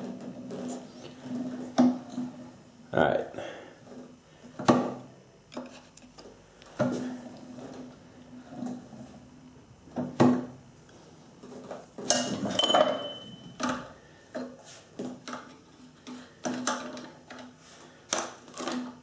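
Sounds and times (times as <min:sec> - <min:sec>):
short metallic ring: 0:12.5 - 0:13.6.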